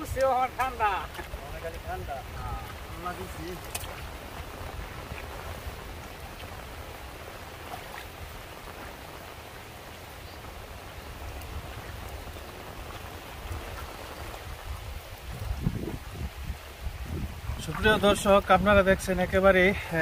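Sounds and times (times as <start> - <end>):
raindrop ticks: 0.0 - 5.6, 11.2 - 14.4
light rain hissing: 0.0 - 20.0.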